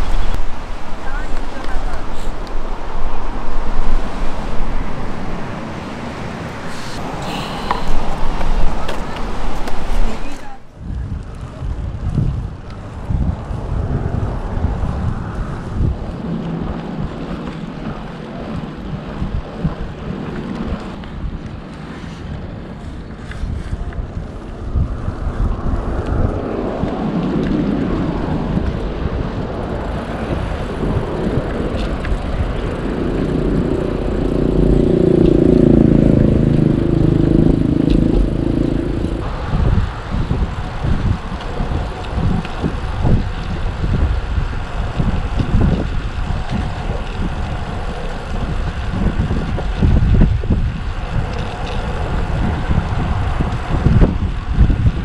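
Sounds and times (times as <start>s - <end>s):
wind buffeting the microphone: 0.0s - 55.0s
motor passing by: 29.8s - 39.8s.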